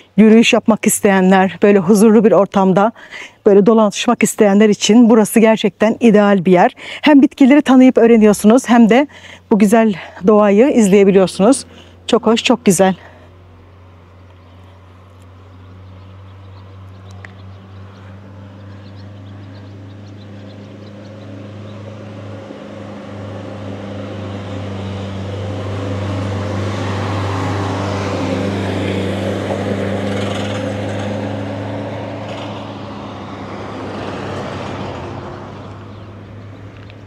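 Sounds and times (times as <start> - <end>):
vehicle engine passing slowly: 9.1 - 37.0.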